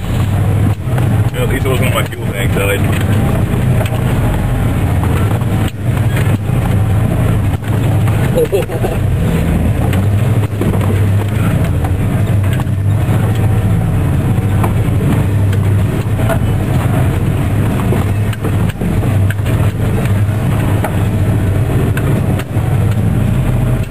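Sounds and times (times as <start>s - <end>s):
truck engine running: 0.0s - 23.9s.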